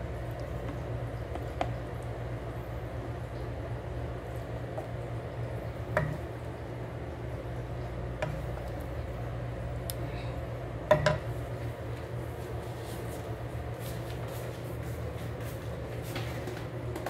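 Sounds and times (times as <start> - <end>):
steady low hum: 0.0 - 17.0
spatula stirring food in a frying pan: 4.3 - 6.4, 7.8 - 9.1
spatula knocking against pan: 5.9 - 6.2, 10.9 - 11.3.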